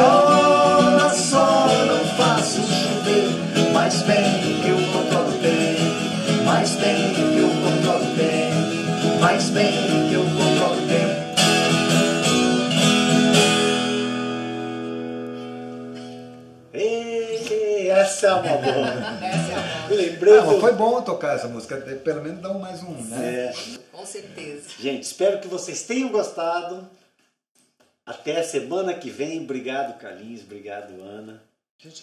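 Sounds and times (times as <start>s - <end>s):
acoustic guitars strumming and picking: 0.0s - 16.8s, 17.4s - 20.9s.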